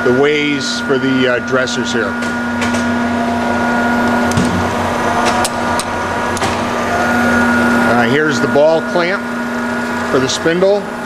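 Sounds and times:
grinder humming: 0.0s - 11.0s
high whine: 0.0s - 11.0s.

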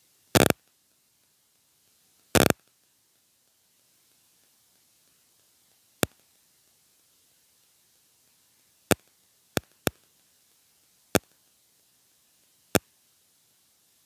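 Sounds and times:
faint steady hiss: 0.0s - 14.0s
sharp short clicks: 0.4s - 0.6s, 2.3s - 2.7s.

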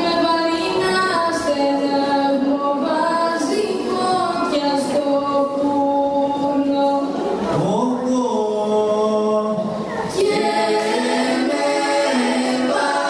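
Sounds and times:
children singing unaccompanied: 0.0s - 6.7s, 9.9s - 13.0s.

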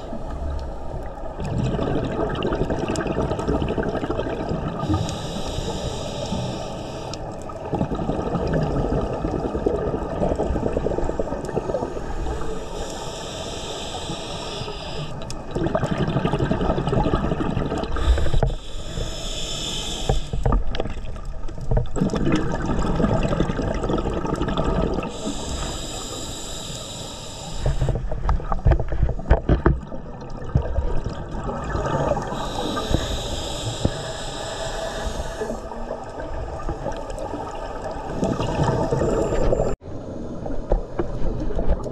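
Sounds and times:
exhaled bubbles rumbling: 0.0s - 5.4s, 7.3s - 13.0s, 15.2s - 18.6s, 20.3s - 25.7s, 27.7s - 41.9s
regulator hissing on inhale: 4.8s - 7.3s, 11.1s - 15.5s, 17.9s - 20.6s, 25.1s - 28.3s, 32.2s - 35.9s.

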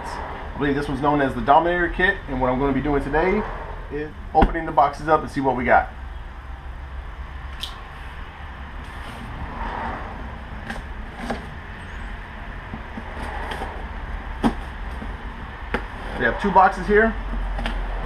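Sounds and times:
steady low rumble: 0.0s - 18.0s
cardboard scraping and rustling: 8.8s - 9.9s, 10.6s - 11.6s, 12.7s - 16.3s.

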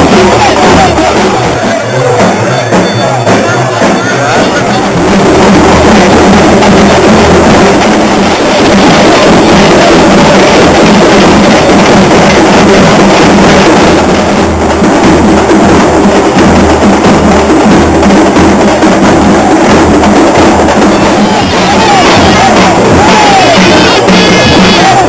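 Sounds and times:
drums playing a steady beat: 0.0s - 25.0s.

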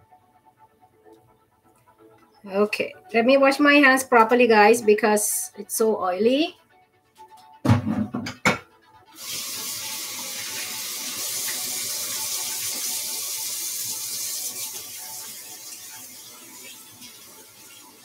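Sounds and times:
tap water running into sink: 9.2s - 18.0s.

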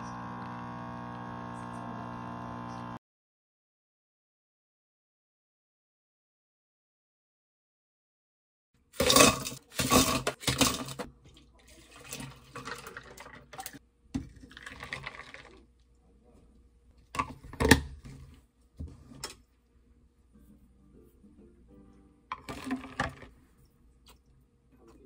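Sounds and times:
liquid pouring over ice: 14.4s - 15.7s.

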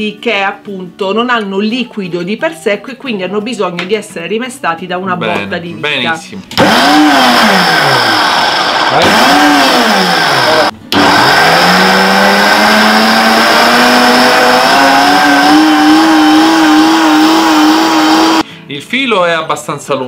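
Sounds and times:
blender motor whining: 6.5s - 18.4s.

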